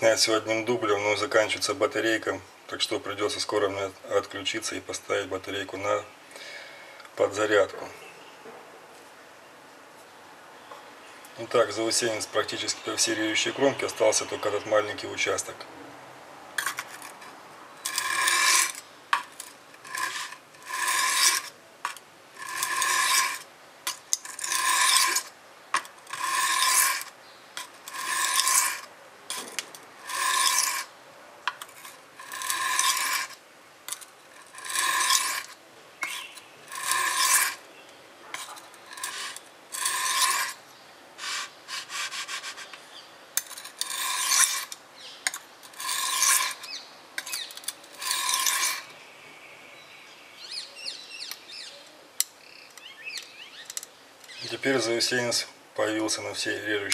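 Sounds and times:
knife scraping on whetstone: 0:16.6 - 0:30.9, 0:31.5 - 0:37.6, 0:38.3 - 0:40.6, 0:41.2 - 0:42.8, 0:43.4 - 0:49.0.

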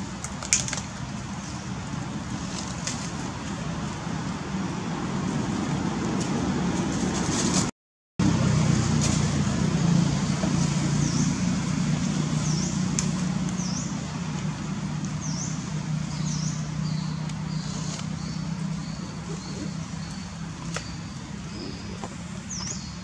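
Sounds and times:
distant road traffic rumble: 0:00.0 - 0:23.0.

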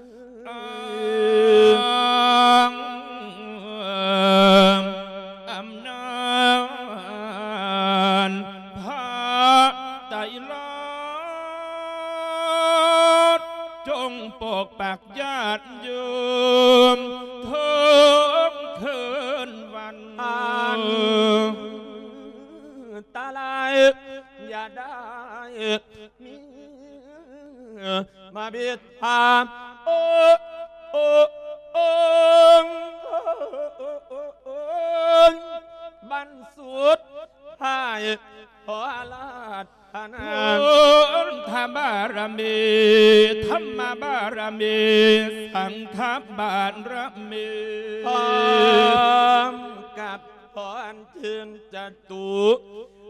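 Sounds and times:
man chanting into a microphone: 0:00.0 - 0:53.0.

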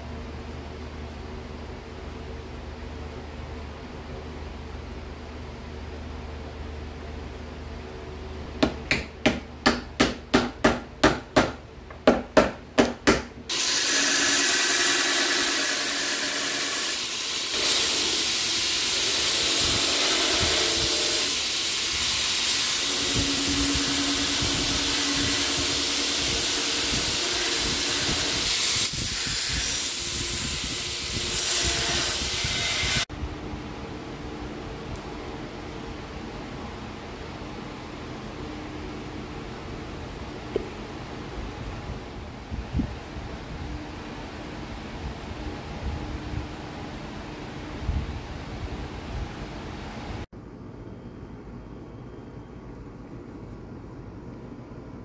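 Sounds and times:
belt grinder grinding wood: 0:13.5 - 0:21.8.

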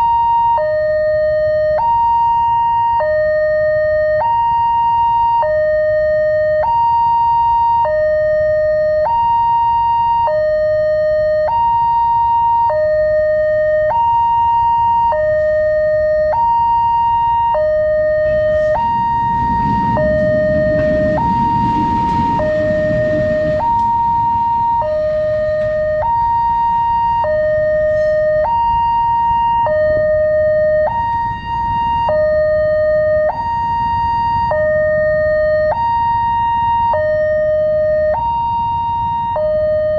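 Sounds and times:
level crossing two-tone alarm: 0:00.0 - 0:39.9
locomotive rumble: 0:14.9 - 0:39.9.

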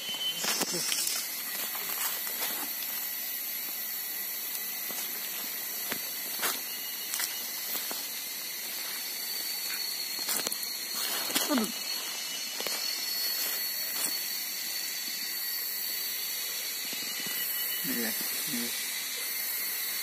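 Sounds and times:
forest insects droning: 0:00.0 - 0:20.0
footsteps on dry leaves: 0:00.1 - 0:03.0, 0:04.8 - 0:14.4.

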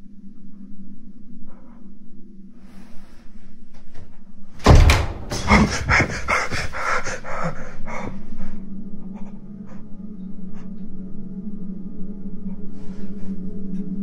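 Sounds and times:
door banging open: 0:04.6 - 0:06.6.

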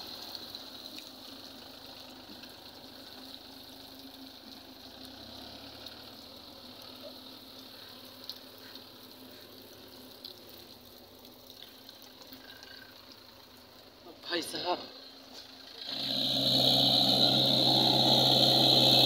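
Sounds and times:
small ticks: 0:07.5 - 0:13.9
tractor diesel engine running: 0:15.0 - 0:19.0.

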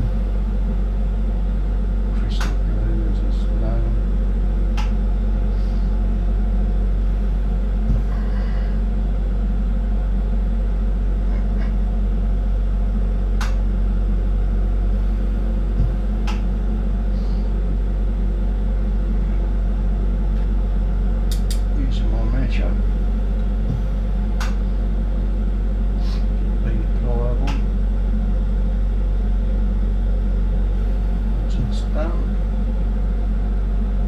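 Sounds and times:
torch burning with low rumble: 0:00.0 - 0:34.0.

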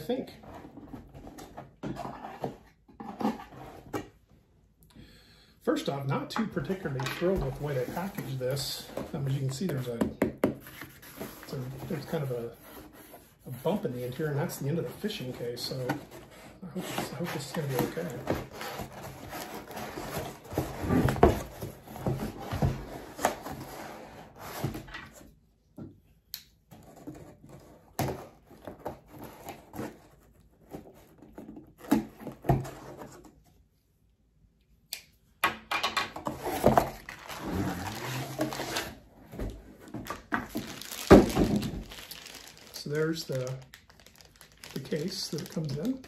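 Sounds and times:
cardboard scraping and rustling: 0:00.3 - 0:04.2, 0:06.6 - 0:10.0, 0:10.6 - 0:25.3, 0:36.2 - 0:43.8
plastic-wrapped tube rustling: 0:36.3 - 0:46.0.

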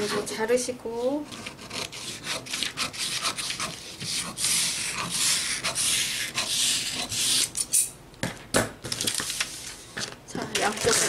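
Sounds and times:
scissor blades rasping along paper: 0:01.1 - 0:07.9
scissors snipping paper: 0:01.3 - 0:07.6
paper rustling: 0:08.8 - 0:11.0.

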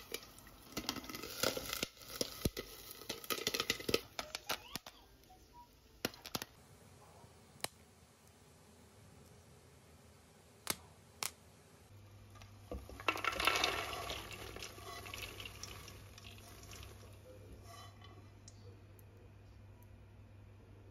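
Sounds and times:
popcorn pouring into a bowl: 0:00.0 - 0:04.8, 0:12.3 - 0:18.2
low steady hum: 0:00.0 - 0:20.9.

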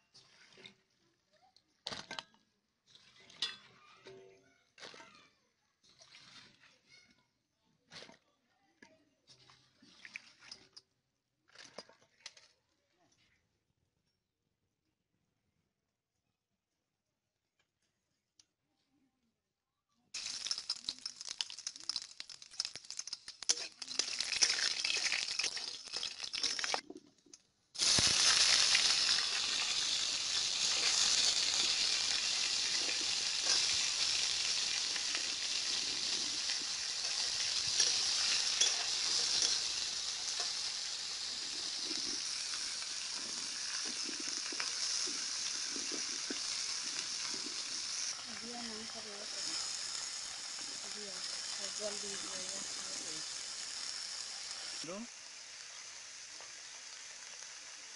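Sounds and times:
vegetables sizzling in hot oil: 0:20.2 - 0:26.9, 0:27.8 - 0:57.9
irregular crackling: 0:20.2 - 0:50.0.

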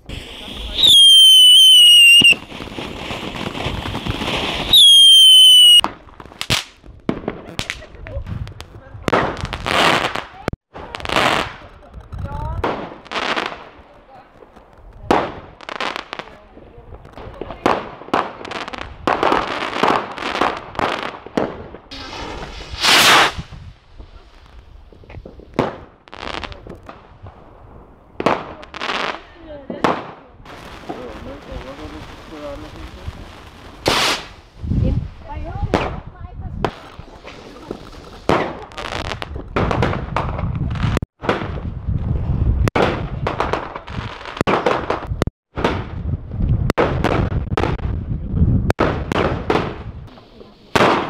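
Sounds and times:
firework hissing rush: 0:00.0 - 0:05.8, 0:21.9 - 0:24.5, 0:33.7 - 0:34.6
firecrackers and rockets bursting: 0:00.0 - 0:51.0
firework piercing whistles: 0:00.1 - 0:02.6, 0:03.8 - 0:05.8
sharp cracks: 0:05.2 - 0:06.8
rocket launching with rushing hiss: 0:21.9 - 0:25.7, 0:31.8 - 0:36.0.

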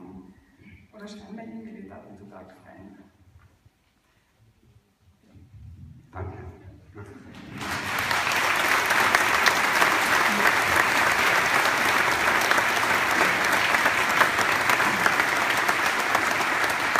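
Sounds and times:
audience applauding: 0:07.4 - 0:16.9.

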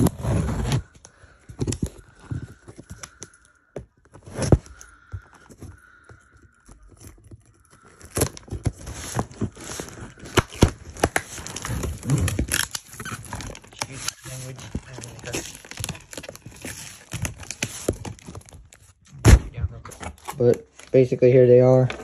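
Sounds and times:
packaging tearing and crinkling: 0:06.5 - 0:19.1.

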